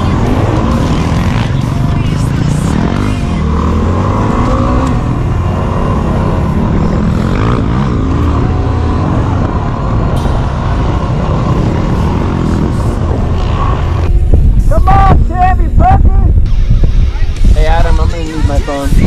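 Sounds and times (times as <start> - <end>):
motorcycle engine revving: 0.0 - 14.6
wind noise: 0.0 - 19.0.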